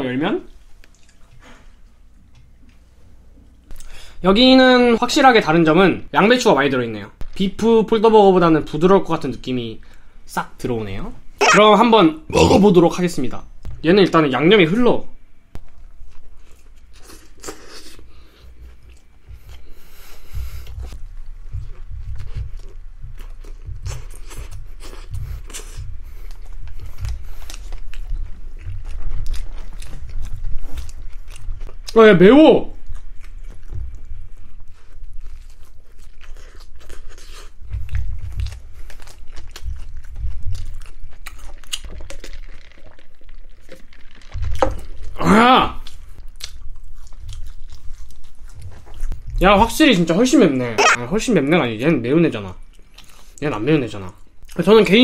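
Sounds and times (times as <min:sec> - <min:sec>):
crunchy chewing: 0:15.7 - 0:32.0, 0:32.7 - 0:45.2, 0:45.8 - 0:49.4
person biting and chewing: 0:16.3 - 0:18.1, 0:45.8 - 0:49.2, 0:50.8 - 0:51.1.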